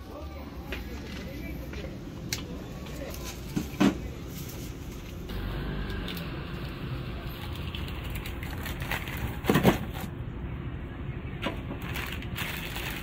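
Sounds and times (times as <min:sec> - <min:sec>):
background noise: 0:00.0 - 0:13.0
plastic bag crinkling crunch: 0:11.8 - 0:13.0
plastic bag rustling: 0:11.8 - 0:13.0.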